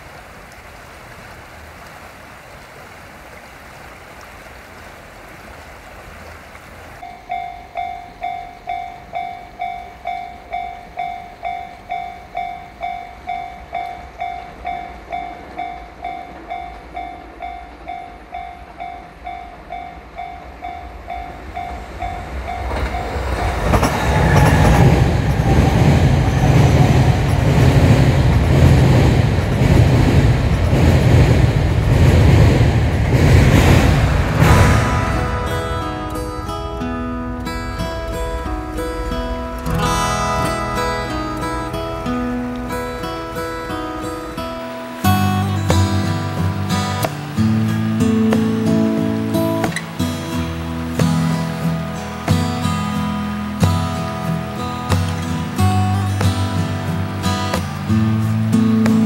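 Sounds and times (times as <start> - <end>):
train wheels rumbling on rails: 0.0 - 59.0
level crossing warning bell: 7.0 - 29.7.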